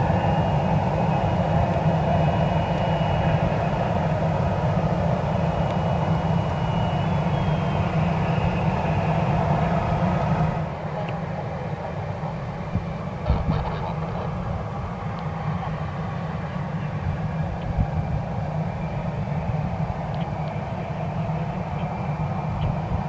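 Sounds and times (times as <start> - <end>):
jet engines running: 0.0 - 23.0
wind on microphone: 12.3 - 23.0.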